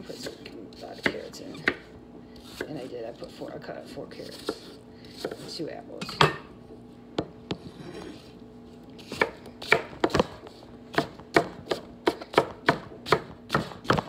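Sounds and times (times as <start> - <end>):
knife chopping on wooden board: 1.0 - 2.9, 9.0 - 14.0.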